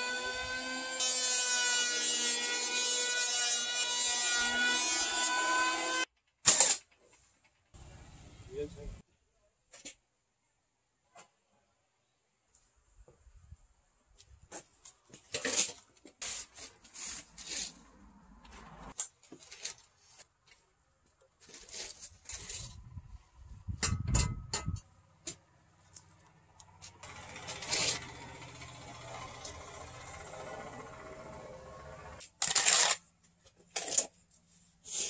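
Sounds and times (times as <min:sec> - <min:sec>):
square and pencil scraping wood: 0:16.2 - 0:18.0, 0:27.4 - 0:28.1, 0:34.7 - 0:35.0.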